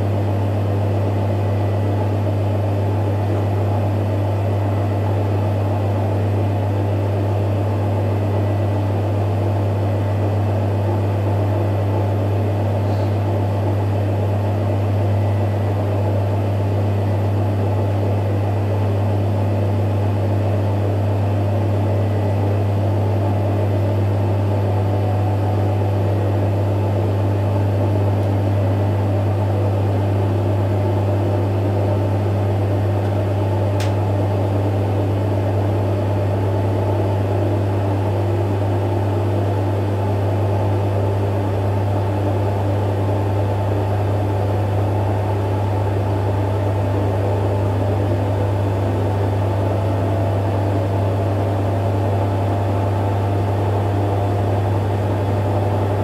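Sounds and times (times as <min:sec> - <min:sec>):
washing machine spinning: 0:00.0 - 0:56.0
washing machine click: 0:33.0 - 0:34.0.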